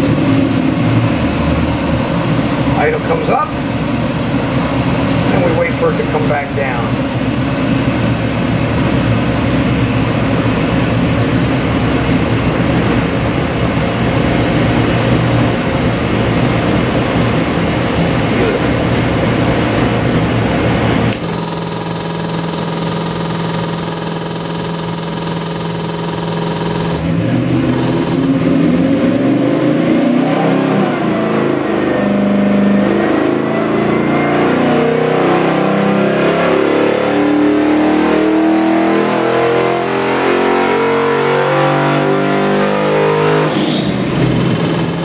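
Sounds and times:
engine idling and revving on dyno: 0:00.0 - 0:45.0.

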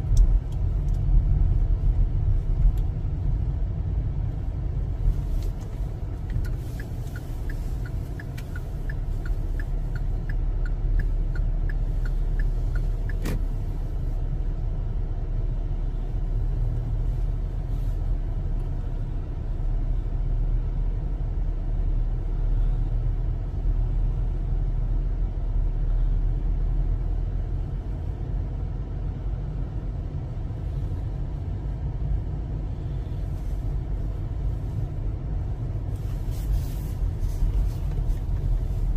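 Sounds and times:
car cabin engine and road noise: 0:00.0 - 0:38.9
regular light ticking: 0:05.6 - 0:13.4.

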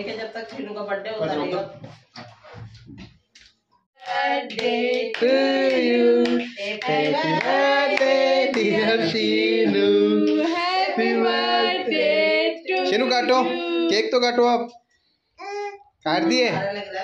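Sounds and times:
hand claps: 0:04.0 - 0:08.8.

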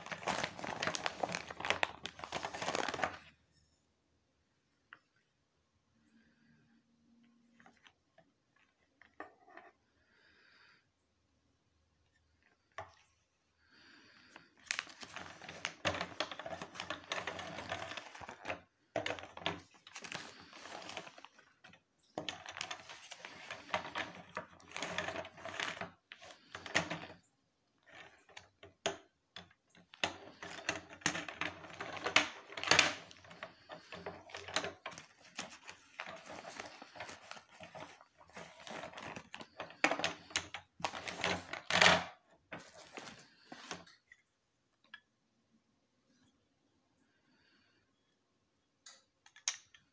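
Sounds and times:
plastic cubes clicking and clattering: 0:00.0 - 0:03.2, 0:14.6 - 0:27.2, 0:27.8 - 0:43.9
plastic bag rustling: 0:00.0 - 0:03.3, 0:14.6 - 0:27.2, 0:30.0 - 0:43.9.

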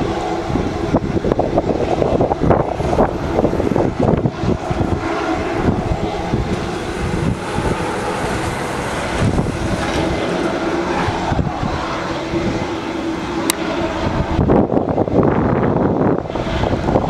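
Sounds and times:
ground equipment machine hum: 0:00.0 - 0:17.0
wind rumbling on microphone: 0:00.0 - 0:17.0.

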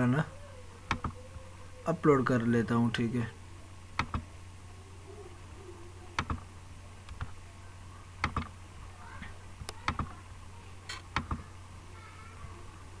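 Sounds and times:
low electrical hum: 0:00.0 - 0:13.0
computer mouse clicking: 0:04.0 - 0:04.2, 0:06.2 - 0:06.4, 0:08.2 - 0:08.5.

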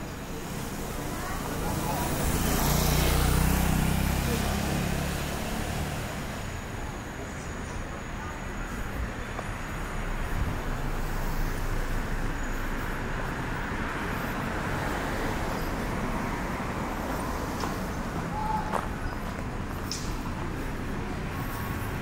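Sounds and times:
street traffic: 0:00.0 - 0:22.0
vehicle passing: 0:00.3 - 0:06.6.

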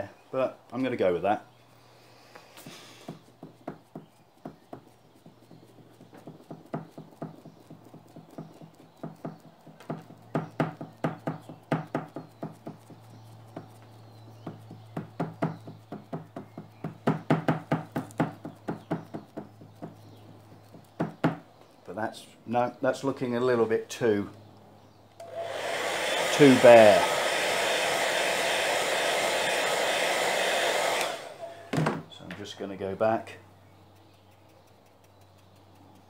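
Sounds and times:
cloth rag dabbing on board: 0:02.7 - 0:21.4.

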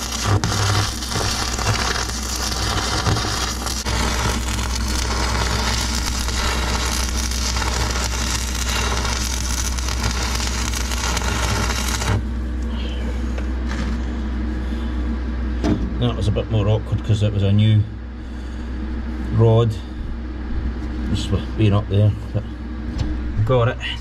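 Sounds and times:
welding arc crackling and hissing: 0:00.0 - 0:12.7, 0:13.6 - 0:14.1
steady low hum: 0:00.0 - 0:24.0.

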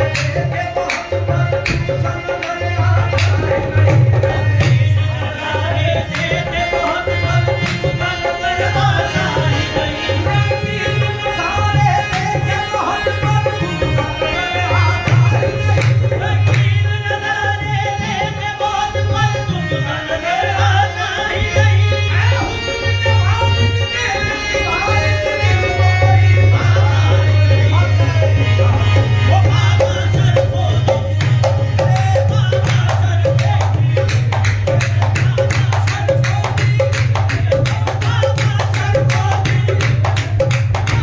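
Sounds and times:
hand drum rhythm: 0:00.0 - 0:08.2, 0:08.8 - 0:18.5, 0:27.8 - 0:41.0
harmonium: 0:00.0 - 0:41.0
people singing: 0:00.0 - 0:41.0.

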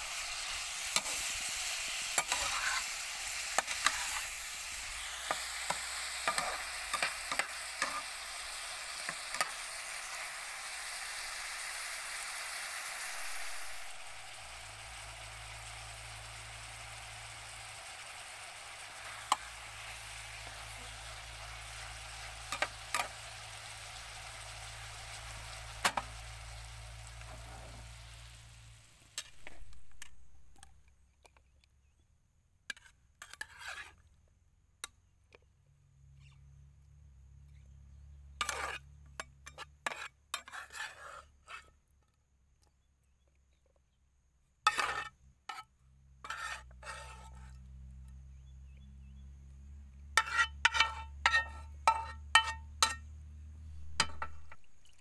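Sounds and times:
food sizzling in hot oil: 0:00.0 - 0:30.8, 0:50.2 - 0:55.0
metal spatula scraping pan: 0:00.1 - 0:10.2, 0:13.1 - 0:15.2, 0:16.0 - 0:26.2, 0:32.7 - 0:34.0, 0:38.4 - 0:41.7, 0:44.7 - 0:45.6, 0:46.2 - 0:47.6, 0:50.2 - 0:53.1, 0:53.7 - 0:54.7.

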